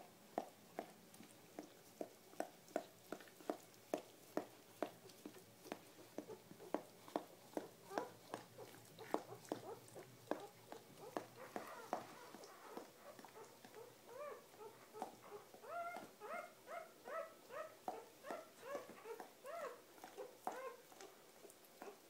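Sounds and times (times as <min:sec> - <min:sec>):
puppy crying squeaks: 0:11.0 - 0:19.8, 0:20.5 - 0:20.8.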